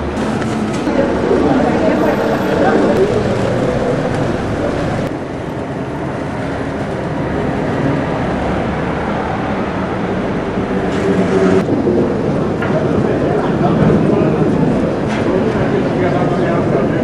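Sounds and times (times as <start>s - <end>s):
vehicle engine rumble: 0.0s - 7.7s.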